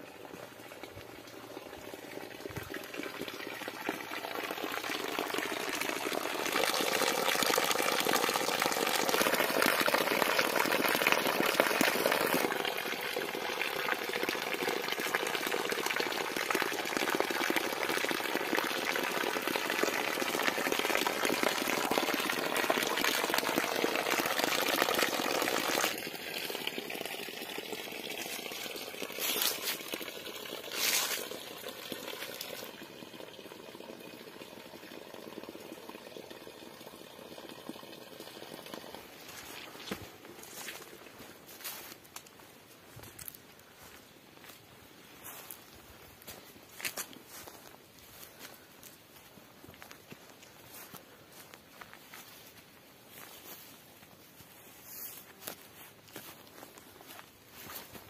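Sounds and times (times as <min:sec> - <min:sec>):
water pouring onto rocks: 0:01.0 - 0:33.2.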